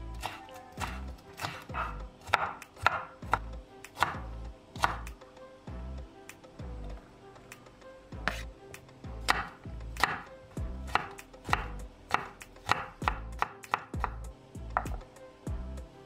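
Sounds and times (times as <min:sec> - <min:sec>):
knife chopping on wooden board: 0:00.2 - 0:05.1, 0:08.2 - 0:08.5, 0:09.2 - 0:15.1.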